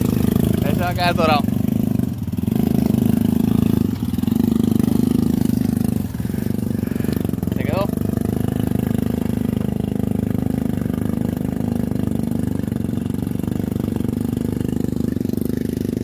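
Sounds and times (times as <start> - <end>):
vehicle wading through water: 0.0 - 11.1
quad engine running at low speed: 0.0 - 16.0.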